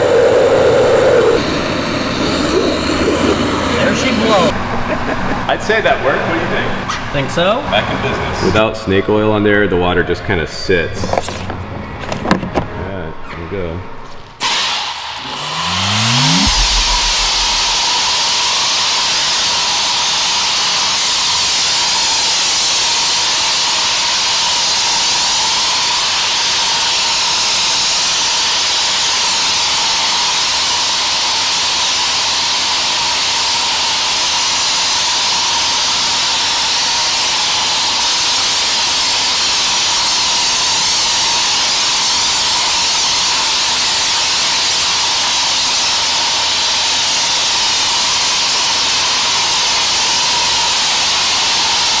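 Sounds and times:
thin steady whine: 0.0s - 4.5s, 15.2s - 17.8s.

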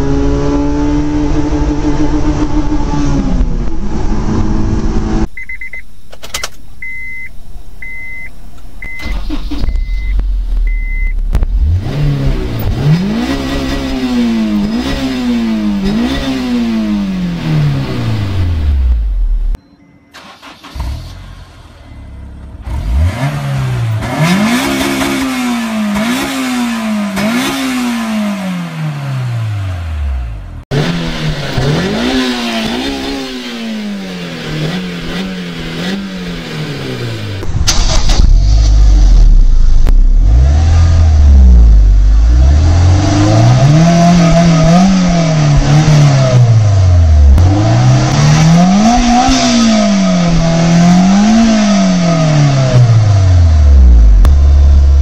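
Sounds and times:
high beeps: 5.3s - 5.9s, 6.8s - 11.2s
car engine revving: 8.8s - 19.6s, 20.2s - 55.0s.

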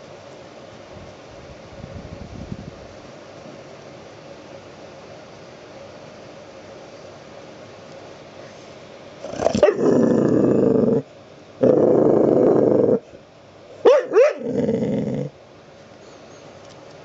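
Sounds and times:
puppy growling: 9.2s - 13.1s, 13.9s - 15.4s
puppy barking: 9.4s - 9.9s, 13.8s - 14.5s.

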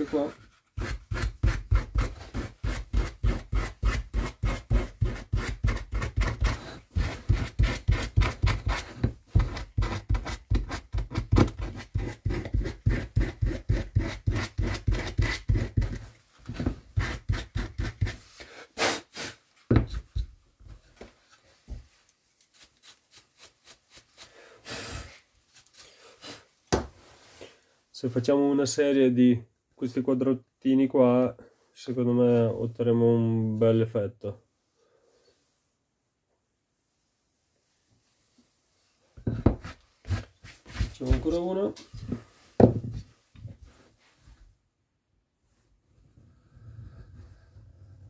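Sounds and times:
carving tool scraping wood: 0.0s - 18.3s, 39.2s - 41.5s.

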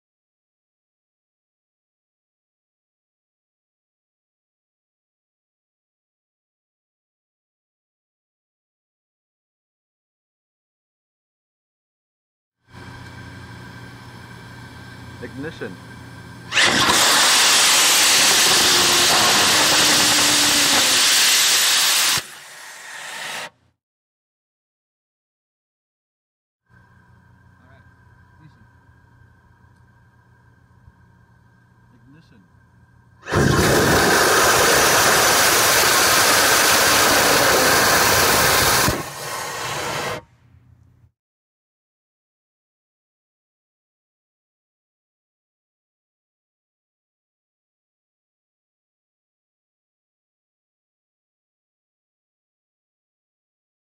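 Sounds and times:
rocket engine hissing: 16.5s - 23.6s, 33.2s - 40.2s.

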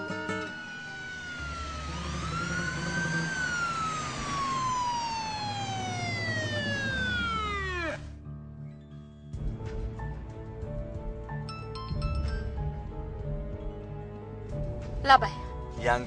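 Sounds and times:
police siren wailing: 0.0s - 8.2s
traffic rumble: 0.1s - 8.2s.

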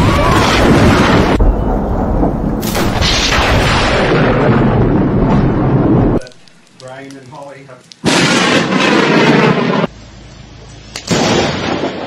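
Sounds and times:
thunder cracks and rumbling: 0.0s - 6.3s, 8.0s - 9.9s.

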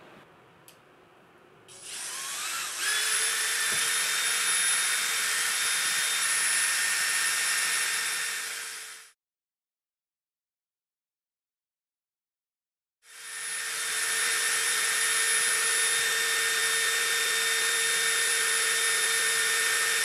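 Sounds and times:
cordless drill whine: 1.7s - 9.2s, 13.1s - 20.0s.

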